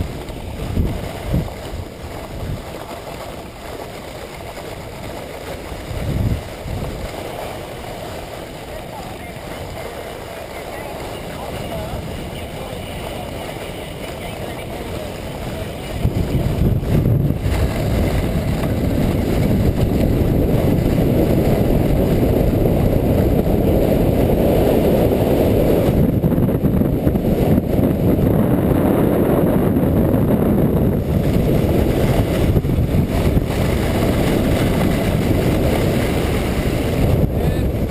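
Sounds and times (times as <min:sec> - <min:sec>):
sled sliding over snow: 0:00.0 - 0:37.9
wind buffeting microphone: 0:00.0 - 0:37.9.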